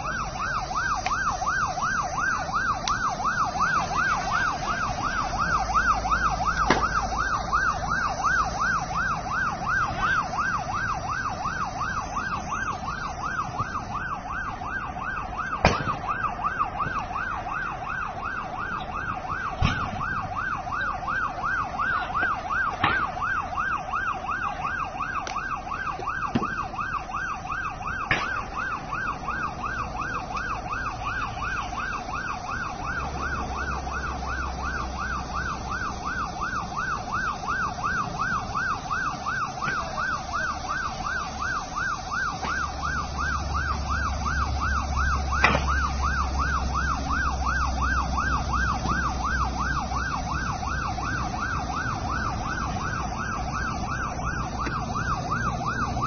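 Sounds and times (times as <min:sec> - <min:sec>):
siren yelping: 0:00.0 - 0:56.0
sharp pops: 0:06.5 - 0:07.8, 0:15.5 - 0:16.2, 0:21.9 - 0:23.4, 0:28.0 - 0:28.7, 0:45.4 - 0:46.4.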